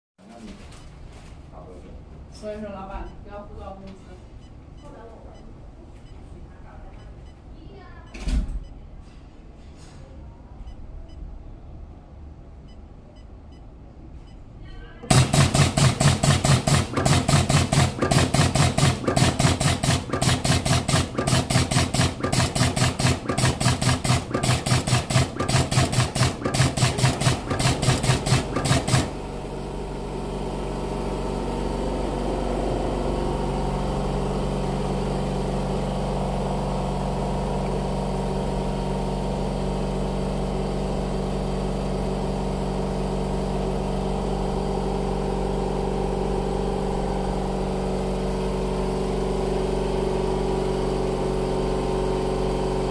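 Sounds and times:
machine humming: 0:15.0 - 0:52.9
pneumatic punch clacking: 0:15.1 - 0:29.1.

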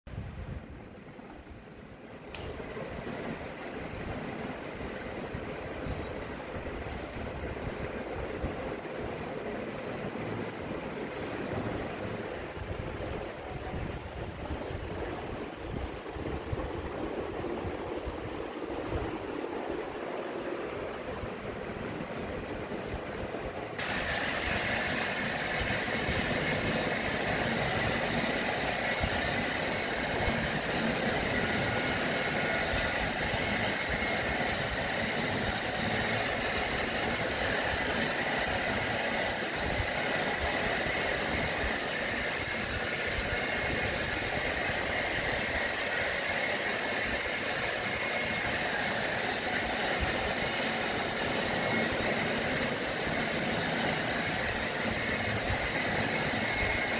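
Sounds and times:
hair dryer blowing: 0:23.8 - 0:56.9.

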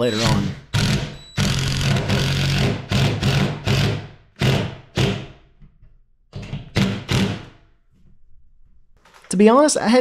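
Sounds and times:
impact driver driving a screw: 0:00.7 - 0:05.4, 0:06.6 - 0:07.6.

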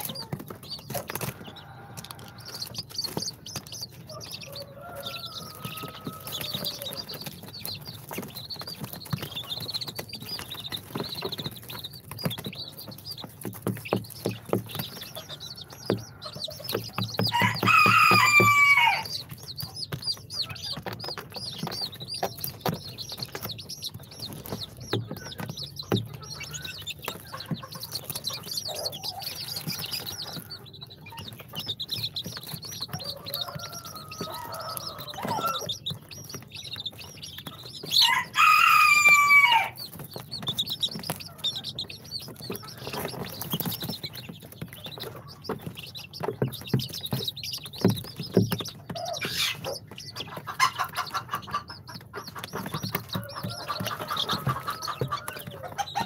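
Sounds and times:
chicks peeping: 0:00.0 - 0:56.0
loud chick call: 0:17.2 - 0:19.3, 0:38.0 - 0:39.8.

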